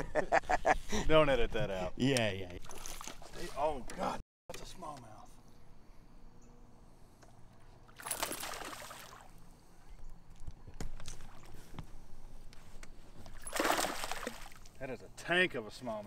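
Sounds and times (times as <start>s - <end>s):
fish splashing at water surface: 7.9s - 9.4s, 13.4s - 14.8s.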